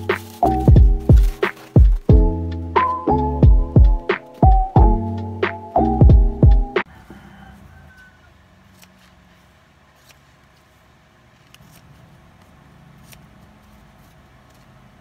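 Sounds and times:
paper rustling: 0:00.0 - 0:02.1, 0:08.6 - 0:15.0.

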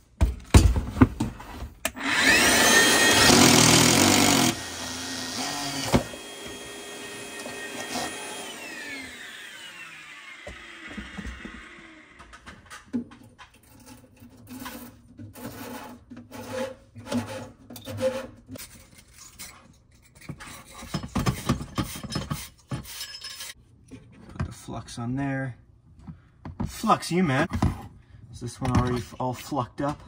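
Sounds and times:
electric drill winding down: 0:01.9 - 0:12.4
scraping and rubbing: 0:13.3 - 0:24.3.

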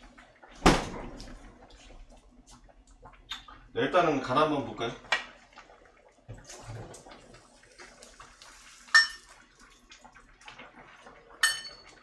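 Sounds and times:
stew bubbling in a pot: 0:00.0 - 0:12.0
kitchen clatter: 0:11.2 - 0:12.0
spoon clinking on crockery: 0:11.4 - 0:11.8.

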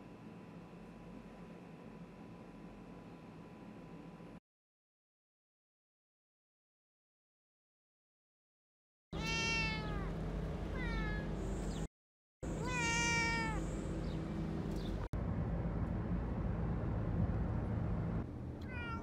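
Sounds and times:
cat meowing: 0:09.2 - 0:11.3, 0:12.5 - 0:13.7, 0:18.6 - 0:19.0
low rumble: 0:13.6 - 0:18.7.

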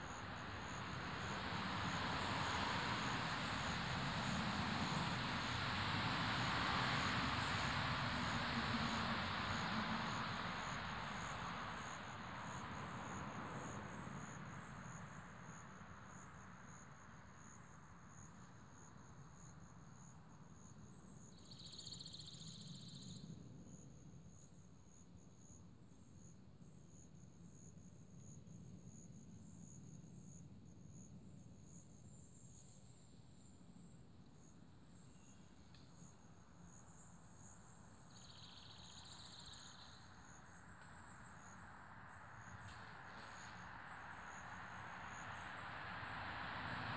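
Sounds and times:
insects chirping: 0:00.0 - 0:46.9.

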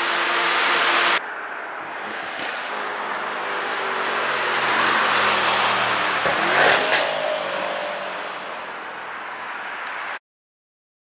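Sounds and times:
car engine driving past: 0:01.9 - 0:08.9.

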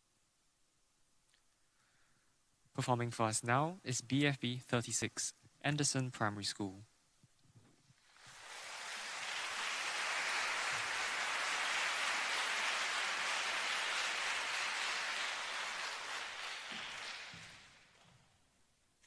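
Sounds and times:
audience applauding: 0:08.0 - 0:18.0.

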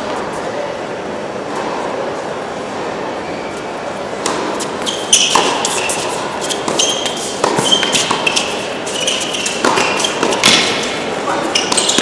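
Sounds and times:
shoes squeaking on court: 0:03.3 - 0:12.0
rackets striking tennis ball: 0:04.2 - 0:12.0
tennis ball bouncing: 0:04.2 - 0:12.0.

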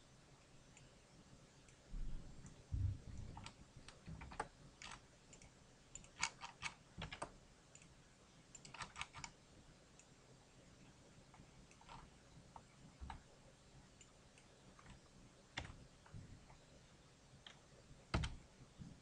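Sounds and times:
low thumps: 0:02.0 - 0:03.3
keyboard and mouse clicking: 0:03.2 - 0:09.4, 0:11.7 - 0:13.3, 0:14.0 - 0:15.8, 0:17.4 - 0:18.4.

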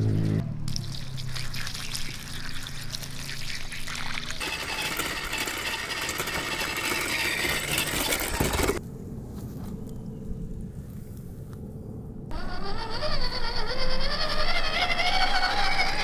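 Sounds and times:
toy truck driving on asphalt: 0:00.5 - 0:08.8, 0:12.3 - 0:16.0
water pouring and splashing: 0:00.6 - 0:05.3.

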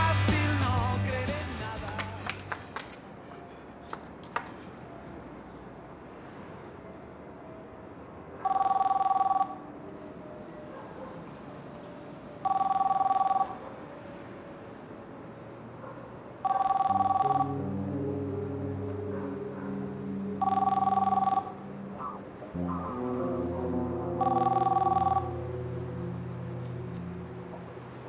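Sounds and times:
low music: 0:00.0 - 0:02.6, 0:16.9 - 0:28.0
mobile phone ringing: 0:08.4 - 0:09.6, 0:12.4 - 0:13.6, 0:16.4 - 0:17.9, 0:20.4 - 0:21.7, 0:24.1 - 0:25.5.

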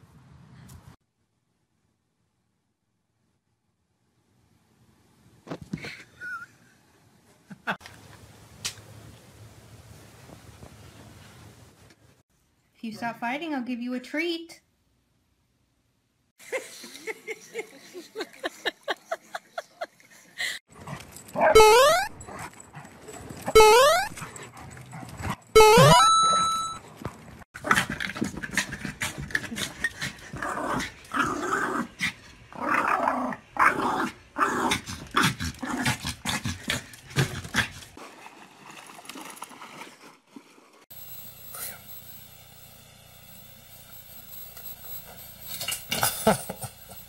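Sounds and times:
dogs growling and yelping: 0:27.6 - 0:38.0.

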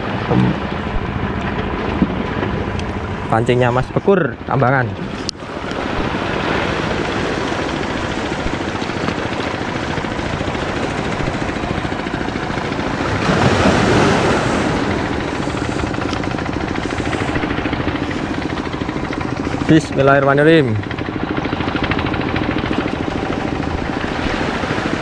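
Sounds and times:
engine throb: 0:00.0 - 0:25.0
waves washing: 0:00.0 - 0:25.0.

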